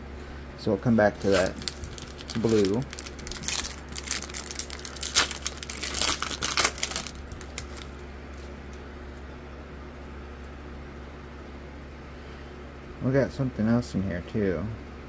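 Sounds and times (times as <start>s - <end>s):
foil wrapper crinkling: 1.1s - 8.6s.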